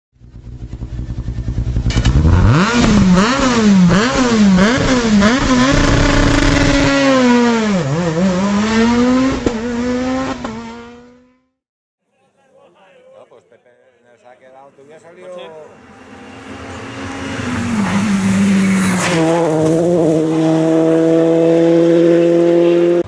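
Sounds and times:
racing engine revving: 0.6 - 11.6, 15.6 - 23.0.

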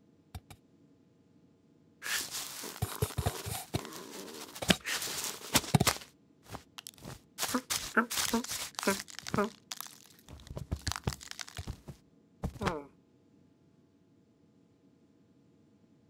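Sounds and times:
sack rustling and crinkling: 2.0 - 12.7.

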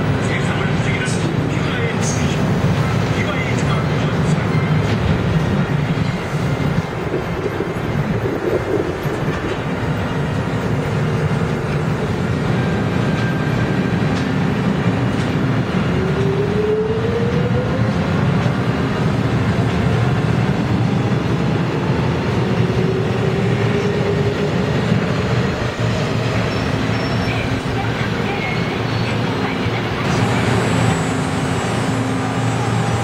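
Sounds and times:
train wheels rumbling: 0.0 - 33.0.

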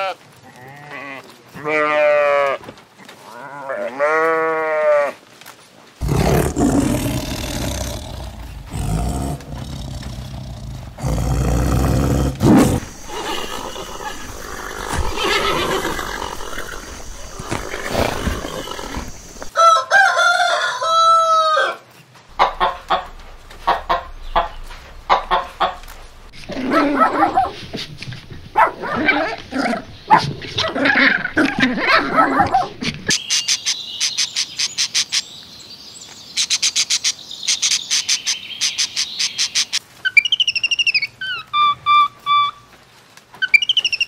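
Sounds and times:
tiger growling: 6.0 - 19.5, 22.3 - 33.1
rooster crowing: 19.4 - 25.8
chicken clucking: 22.3 - 29.4
dogs barking: 22.3 - 32.8.

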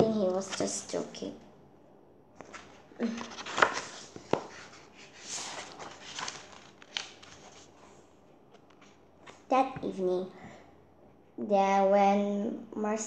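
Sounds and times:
book pages rustling: 0.2 - 1.0, 2.4 - 9.5.

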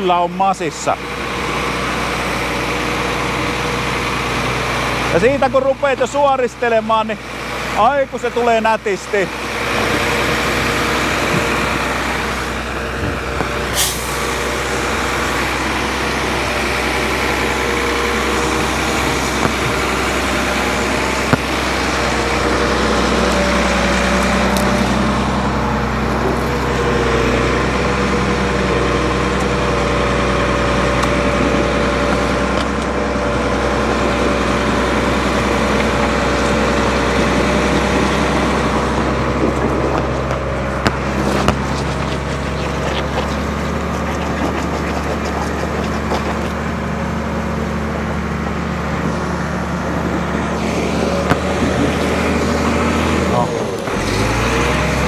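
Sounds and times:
diesel truck engine under load: 0.0 - 55.0
chassis knocks: 18.6 - 22.5.

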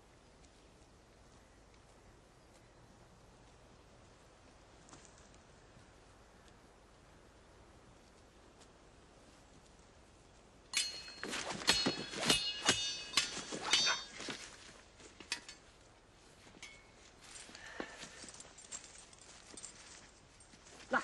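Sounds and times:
sword blades clashing: 10.8 - 14.6.

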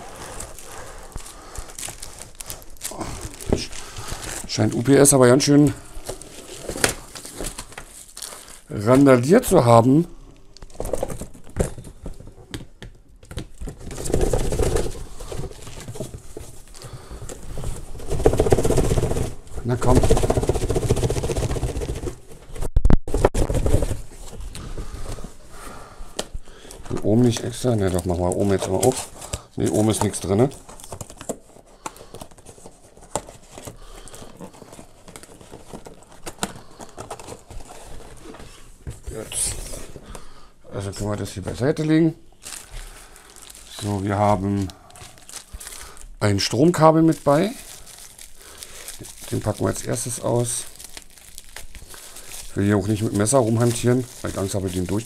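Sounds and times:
plastic wrap rustling: 0.0 - 12.5, 13.2 - 55.0
cardboard box rustling and knocking: 17.3 - 24.4.

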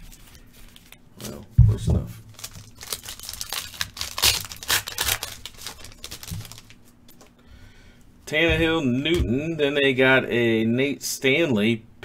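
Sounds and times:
foil wrapper crinkling and tearing: 2.3 - 6.9.

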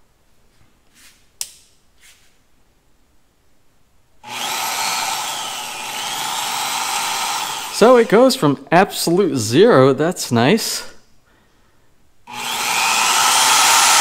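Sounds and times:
sharp click: 1.4 - 1.8
drill press motor whining: 4.2 - 8.4, 12.3 - 14.0.

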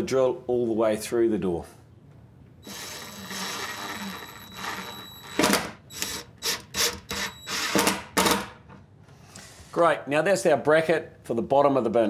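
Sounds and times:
impact driver motor whir: 2.6 - 7.9
impact driver loud bursts: 2.6 - 8.6.

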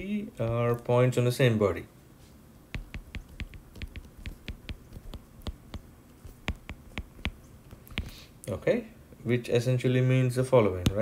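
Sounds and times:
stylus tapping on glass screen: 2.7 - 8.2.

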